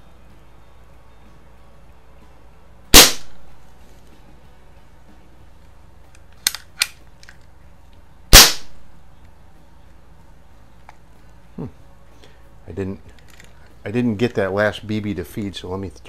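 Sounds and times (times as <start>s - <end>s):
bb pistol firing: 2.9s - 3.4s, 8.3s - 8.8s
pistol handling clicks: 6.1s - 7.5s.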